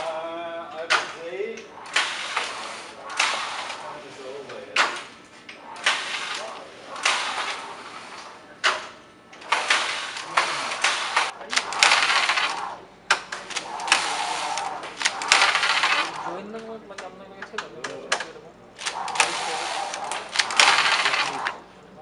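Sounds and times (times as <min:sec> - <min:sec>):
knitting machine carriage sweeping: 0:01.7 - 0:16.5, 0:18.8 - 0:21.7
sharp clicks: 0:08.6 - 0:21.6.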